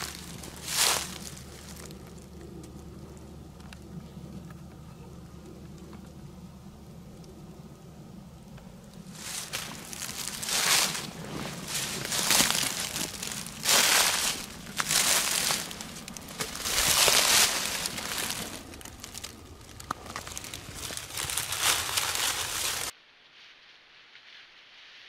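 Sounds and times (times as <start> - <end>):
footsteps crunching dry leaves: 0.0 - 2.3, 9.1 - 22.9.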